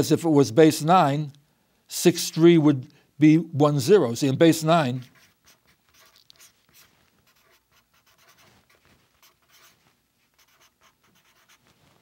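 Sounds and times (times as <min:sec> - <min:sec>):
marker writing on paper: 0:04.8 - 0:11.8.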